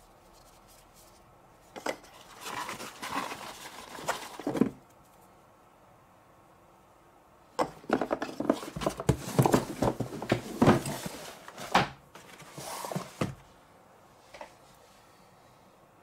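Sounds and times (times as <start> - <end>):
cloth and packaging rustling: 0.4 - 4.8, 7.9 - 13.5.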